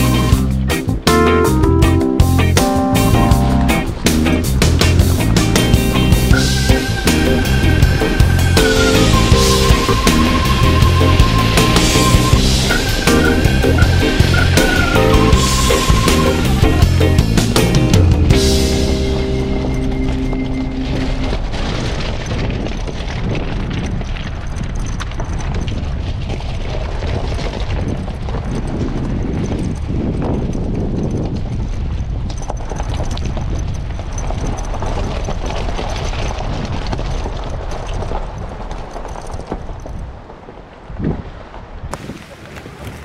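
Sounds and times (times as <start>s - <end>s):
low vehicle rumble: 0.0s - 23.8s
tyres crunching on gravel: 3.4s - 30.2s, 30.8s - 43.0s.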